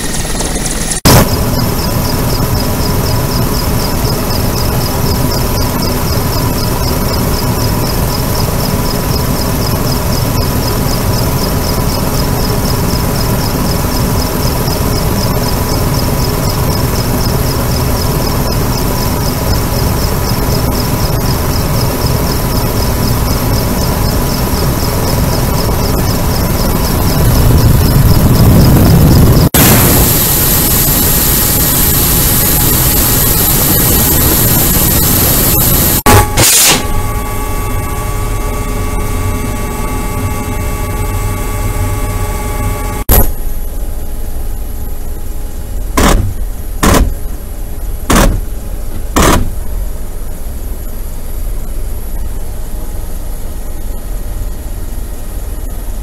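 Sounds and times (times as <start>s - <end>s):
helicopter rotor and engine noise: 0.0s - 56.0s
high wavering whine: 0.0s - 56.0s.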